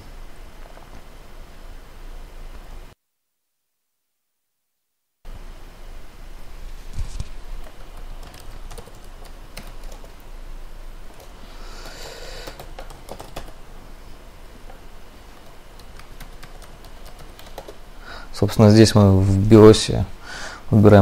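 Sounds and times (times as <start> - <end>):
brief rustle: 6.8 - 7.4
laptop keys clicking: 7.2 - 10.3, 11.1 - 13.6, 14.6 - 17.8.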